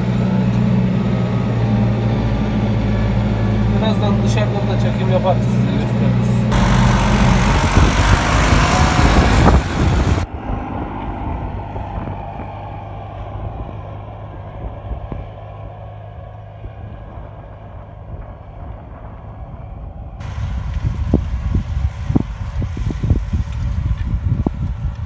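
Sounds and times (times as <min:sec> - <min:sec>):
tractor diesel engine under load: 0:00.0 - 0:10.3, 0:20.2 - 0:25.0.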